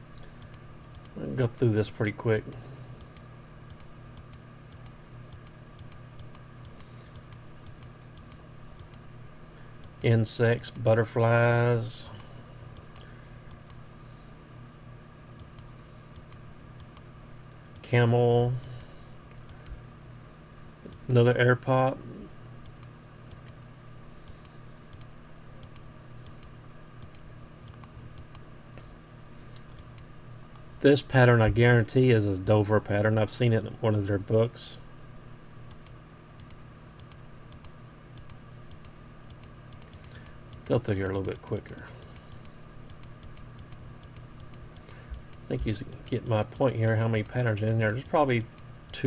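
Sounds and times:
low steady hum: 0:00.0 - 0:49.0
computer mouse clicking: 0:00.2 - 0:01.2, 0:02.5 - 0:09.0, 0:15.4 - 0:17.0, 0:24.2 - 0:28.4, 0:35.7 - 0:49.0.

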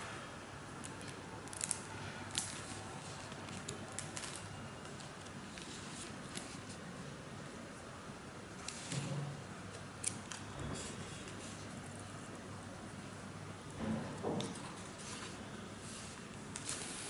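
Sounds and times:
steady low hiss: 0:00.0 - 0:17.0
book pages rustling: 0:00.8 - 0:06.8, 0:14.4 - 0:17.0.

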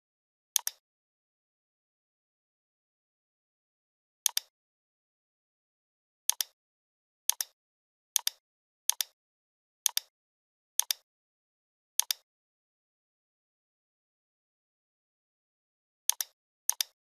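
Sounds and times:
computer mouse clicks: 0:00.6 - 0:00.8, 0:04.3 - 0:04.5, 0:06.3 - 0:06.6, 0:07.3 - 0:07.6, 0:08.2 - 0:09.2, 0:09.9 - 0:10.1, 0:10.8 - 0:11.1, 0:12.0 - 0:12.3, 0:16.1 - 0:17.0.

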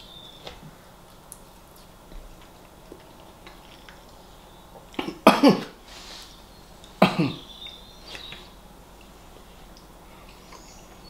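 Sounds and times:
man coughing: 0:05.0 - 0:05.8, 0:07.0 - 0:07.5.

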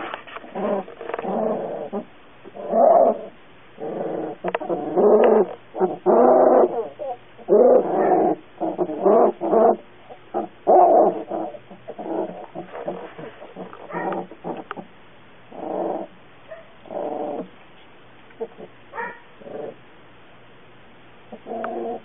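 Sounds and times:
puppies whining and crying: 0:00.4 - 0:14.8.

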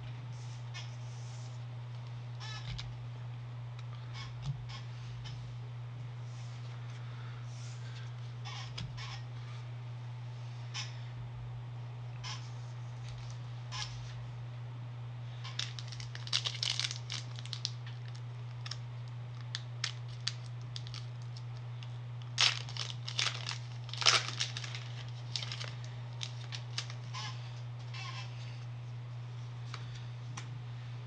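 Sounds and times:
steady low hum: 0:00.0 - 0:31.0
foil wrappers crinkling and tearing: 0:15.4 - 0:28.1
crackling bursts: 0:15.5 - 0:21.6, 0:22.2 - 0:27.1.

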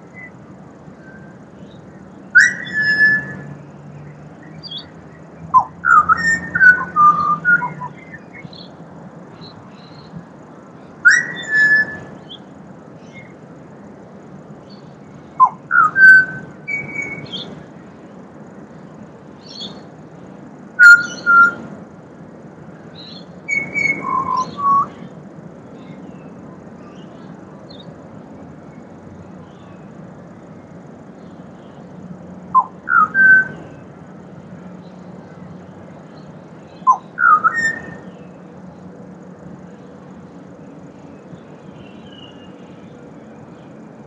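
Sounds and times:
bird singing fluty whistles: 0:00.1 - 0:00.4, 0:01.0 - 0:08.8, 0:11.0 - 0:12.4, 0:14.7 - 0:17.6, 0:19.4 - 0:19.8, 0:20.8 - 0:21.7, 0:23.0 - 0:25.0, 0:32.5 - 0:33.8, 0:36.7 - 0:38.3.

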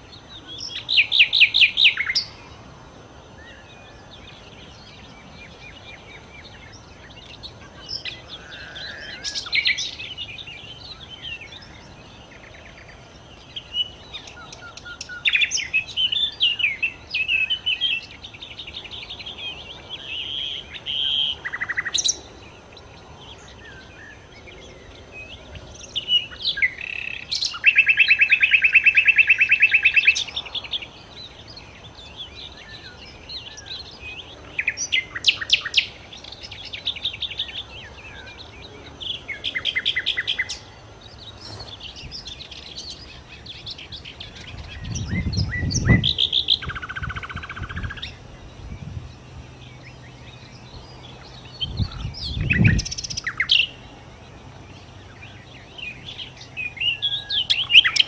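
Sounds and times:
songbird singing: 0:00.0 - 0:58.0
bird trilling: 0:07.8 - 0:10.1.

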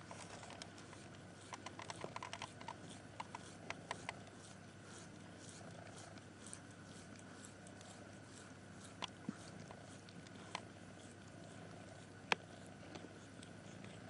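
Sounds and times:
cat mouth wet clicks and smacks: 0:00.4 - 0:14.0.

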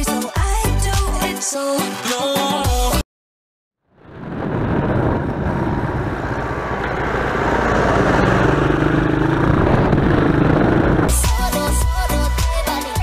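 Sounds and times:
tractor driving past: 0:04.0 - 0:11.1
quad engine running: 0:04.2 - 0:11.2.

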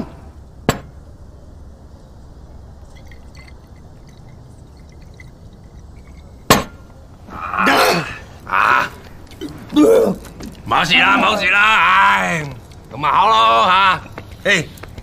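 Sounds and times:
low steady background: 0:00.0 - 0:15.0
man drinking: 0:02.8 - 0:06.4
glass bottle clink: 0:02.9 - 0:06.7.

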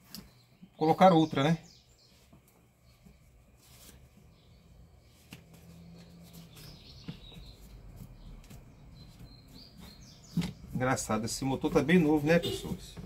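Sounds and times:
cloth rubbing on metal: 0:03.2 - 0:04.3.

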